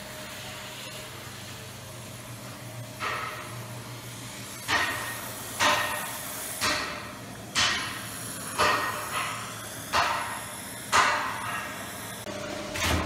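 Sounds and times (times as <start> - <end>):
hammer striking hot metal: 3.0 - 3.7, 4.4 - 12.3.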